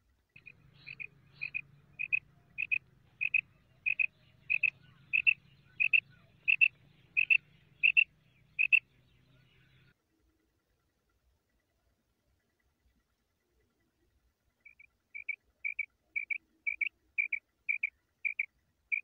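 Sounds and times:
quail calling double notes: 0.4 - 8.9.

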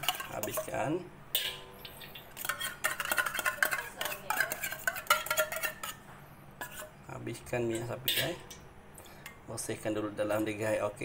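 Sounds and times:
metal spoon scraping a tin: 0.0 - 0.8, 1.4 - 6.0, 6.6 - 6.9.

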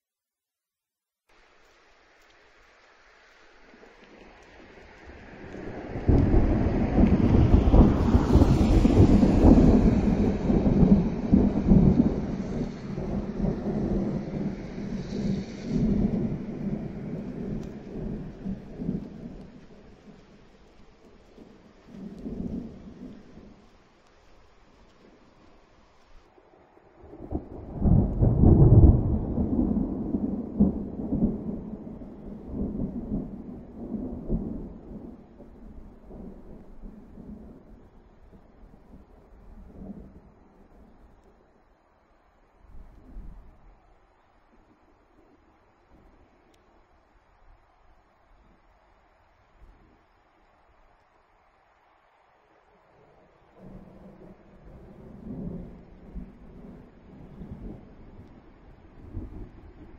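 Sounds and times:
rolling thunder: 5.0 - 20.2, 27.0 - 41.0, 53.6 - 59.9.

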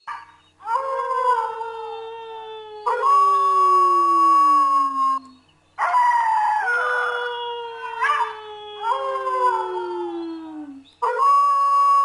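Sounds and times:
dogs howling: 4.9 - 11.3.

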